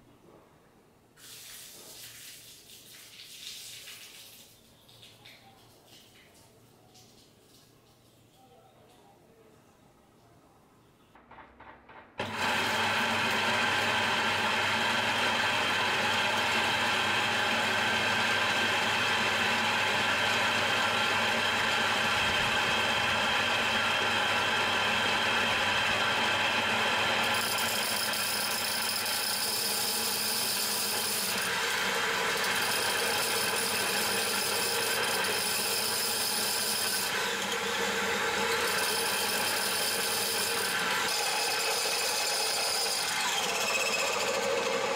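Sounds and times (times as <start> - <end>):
electric grain mill whining: 12.2 - 44.9.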